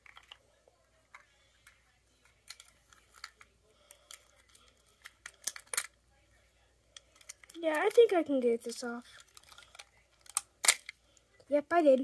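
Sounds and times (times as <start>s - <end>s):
plastic toy pieces clicking: 4.0s - 6.0s, 9.2s - 11.0s.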